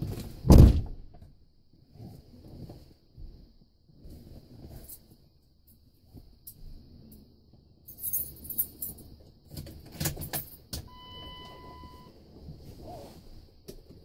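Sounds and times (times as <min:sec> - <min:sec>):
keys jangling in ignition: 0:07.9 - 0:10.7
electronic warning chime: 0:10.9 - 0:12.2.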